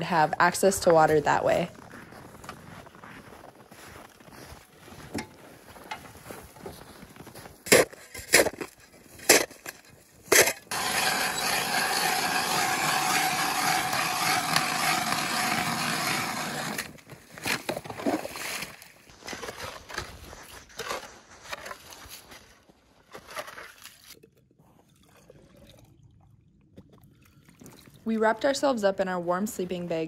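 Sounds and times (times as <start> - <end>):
slush scraping and knocking: 0.1 - 24.2
ice auger grinding through ice: 7.7 - 22.4.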